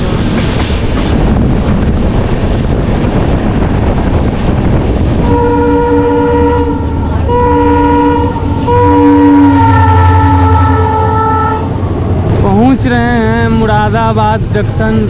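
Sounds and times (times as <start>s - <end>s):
moving train running noise: 0.0s - 15.0s
multi-tone locomotive horn blasts: 5.2s - 11.8s.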